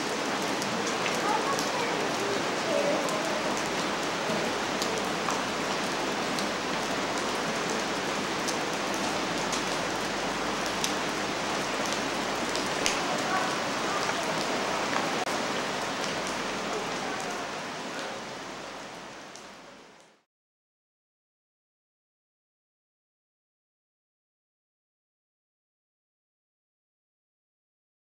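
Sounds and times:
steady rain hiss: 0.0 - 20.2
raindrops ticking: 0.3 - 17.4.

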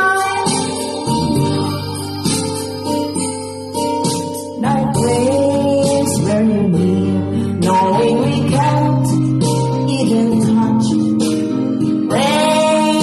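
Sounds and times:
karaoke backing track with guitar: 0.0 - 13.0
woman singing a slow ballad: 0.0 - 13.0.

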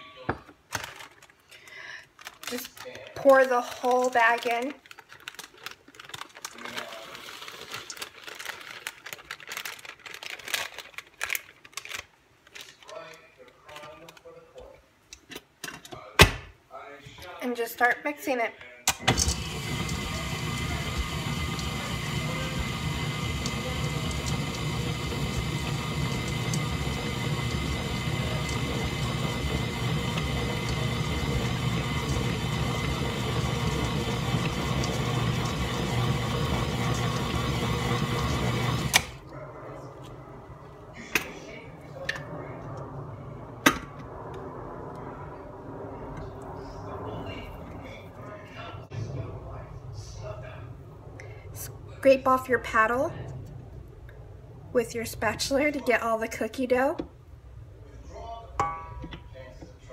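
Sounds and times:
plastic bag crinkling: 0.7 - 14.2
dry mix pouring into a bowl: 1.7 - 11.8, 19.2 - 39.2
beater turning through dough: 19.0 - 39.2
stand mixer motor humming: 19.0 - 39.2.

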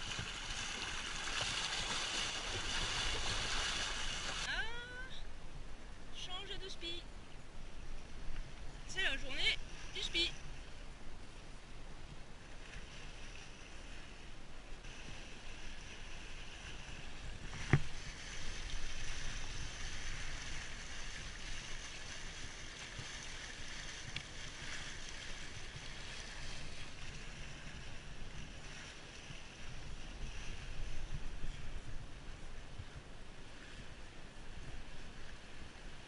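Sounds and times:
water rushing along hull: 0.0 - 36.0
wind on microphone: 14.8 - 36.0.

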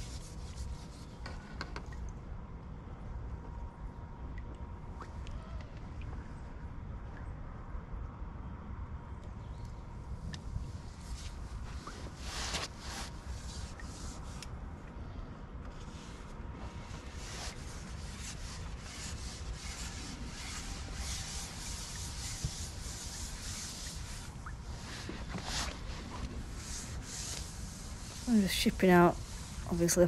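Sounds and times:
rubbing and rustling handling noise: 10.8 - 14.6, 15.6 - 30.0.

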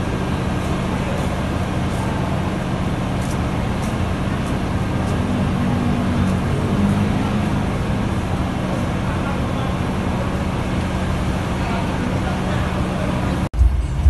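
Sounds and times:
bus engine idling: 0.0 - 14.0.

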